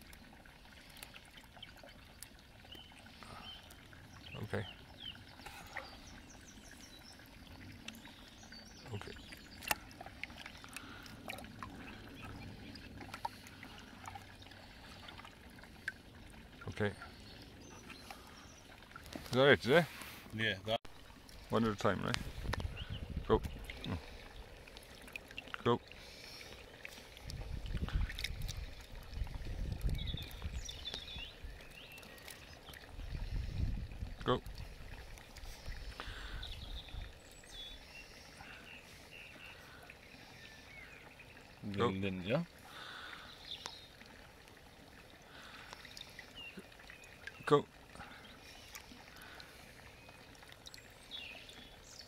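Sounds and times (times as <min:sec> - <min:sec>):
water dripping in plastic bucket: 0:00.0 - 0:19.6, 0:21.0 - 0:37.3, 0:40.9 - 0:52.0
water splashing in plastic bucket: 0:08.6 - 0:16.7, 0:22.0 - 0:36.6.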